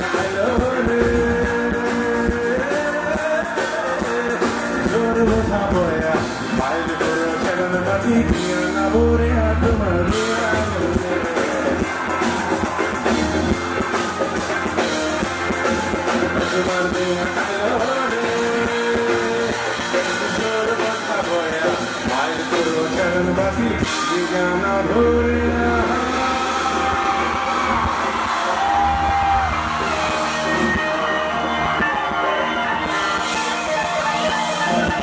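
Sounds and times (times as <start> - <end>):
man singing into microphone: 0.0 - 11.9, 16.2 - 28.0
drums: 0.0 - 35.0
electric guitar: 0.0 - 35.0.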